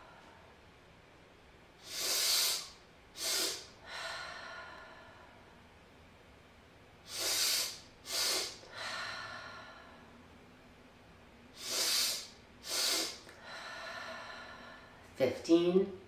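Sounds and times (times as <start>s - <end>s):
sharp inhales through the nose: 1.8s - 4.4s, 7.1s - 10.0s, 11.6s - 15.0s
long quiet exhale: 1.8s - 5.6s, 7.1s - 10.2s, 11.6s - 15.0s.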